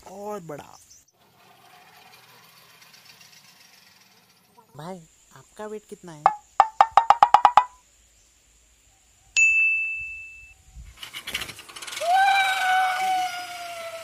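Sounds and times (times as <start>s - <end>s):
pulley carriage whining down cable: 1.2s - 4.7s, 11.0s - 14.0s
bell-like ding: 9.4s - 10.5s.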